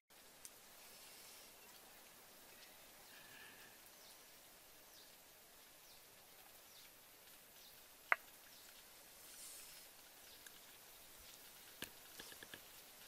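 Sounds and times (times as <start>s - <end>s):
bird chirping: 1.0s - 9.0s.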